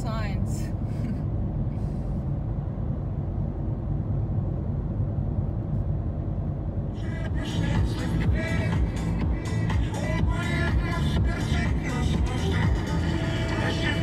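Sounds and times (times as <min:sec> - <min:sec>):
car engine and tyres droning: 0:00.0 - 0:14.0
music: 0:07.0 - 0:14.0.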